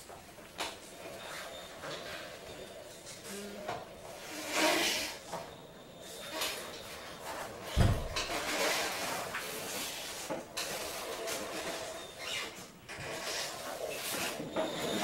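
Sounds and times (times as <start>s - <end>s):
latex rubbing: 7.3s - 10.3s
dull thump: 7.8s - 8.3s.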